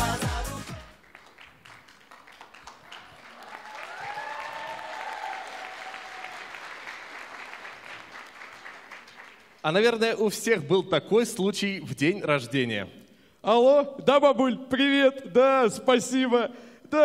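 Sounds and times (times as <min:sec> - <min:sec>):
audience applause: 0:00.9 - 0:09.6.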